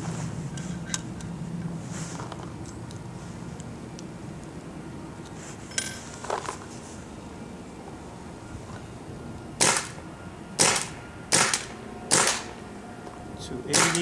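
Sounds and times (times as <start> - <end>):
paintball marker shots popping: 13.7 - 14.0.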